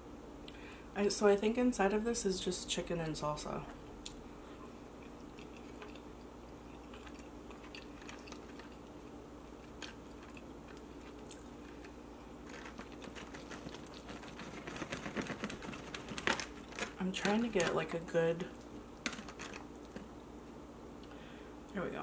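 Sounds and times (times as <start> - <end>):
close chewing: 5.0 - 17.0.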